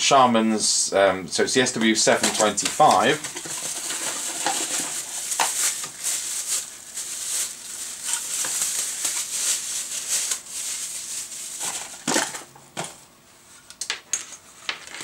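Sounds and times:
plastic bag crinkling: 2.0s - 12.4s.

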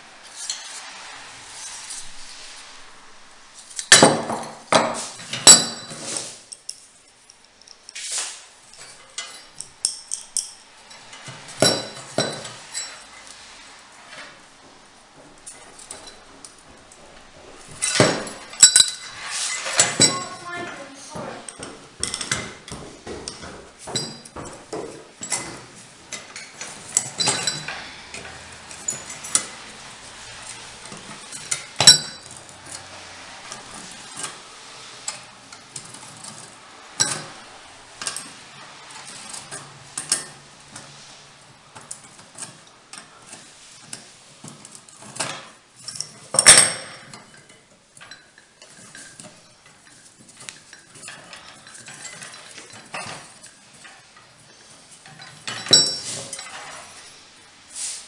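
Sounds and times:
metal doorbell parts clinking: 8.7s - 13.1s, 17.8s - 20.5s, 25.2s - 29.8s, 30.4s - 32.9s, 44.5s - 54.4s, 55.0s - 57.0s.

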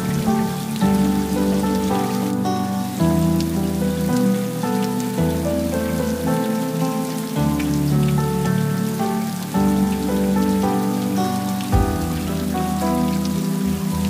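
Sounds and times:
slow music with held chords: 0.0s - 14.0s
steady rain falling: 0.0s - 14.0s
low thump: 11.8s - 12.5s.

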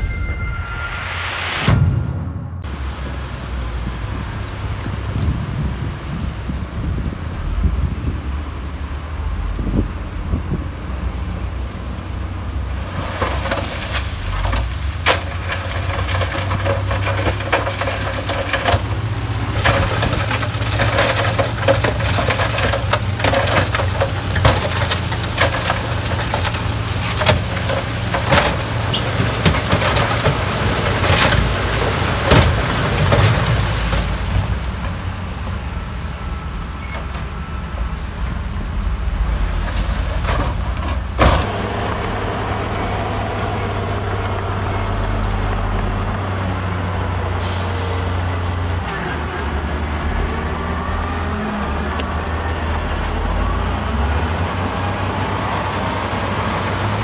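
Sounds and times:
heavy diesel engines running: 2.6s - 57.0s
rocks clanking and knocking: 12.8s - 35.0s, 39.4s - 47.4s.

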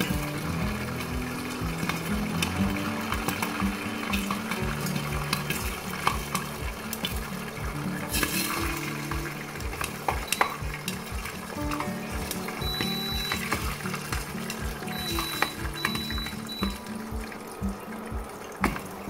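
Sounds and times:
beans sizzling in hot oil: 0.0s - 19.0s
soft background music with beat: 0.0s - 19.0s.

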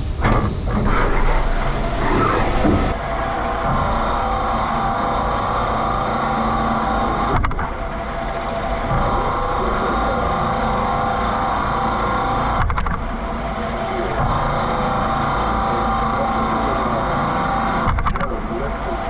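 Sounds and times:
mill drilling metal: 0.0s - 3.0s.

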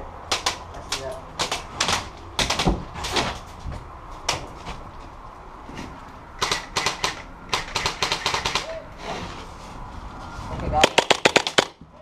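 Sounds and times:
airsoft guns firing: 0.3s - 0.6s, 6.4s - 8.7s, 10.8s - 11.8s.

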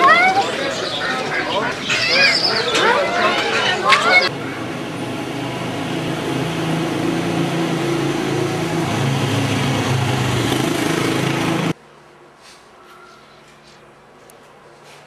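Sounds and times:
small motorbike engine running: 4.3s - 11.8s.

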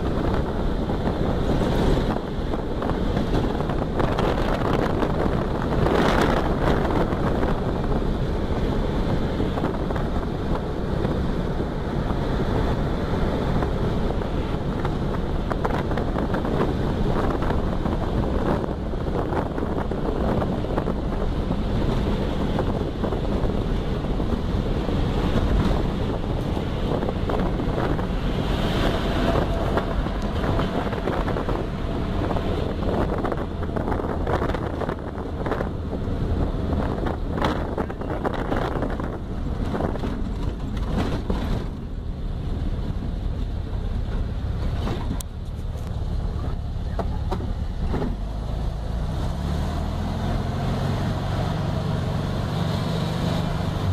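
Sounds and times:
wind noise on microphone: 0.0s - 53.9s.

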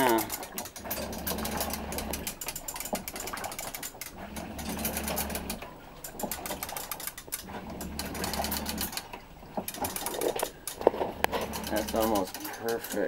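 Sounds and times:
low hum of electric motors: 0.0s - 13.0s
ratchet clicking rapidly: 11.4s - 13.0s.

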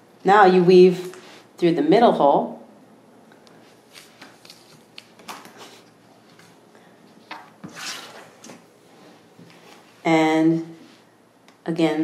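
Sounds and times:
paper rustle and scrape: 7.3s - 9.9s.

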